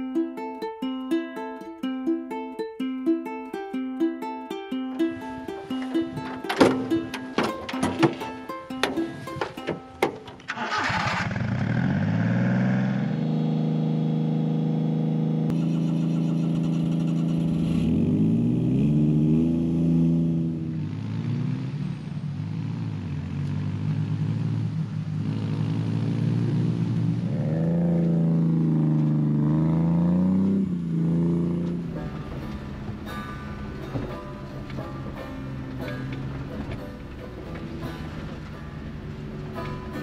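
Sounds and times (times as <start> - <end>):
small engine revving: 10.4 - 40.0.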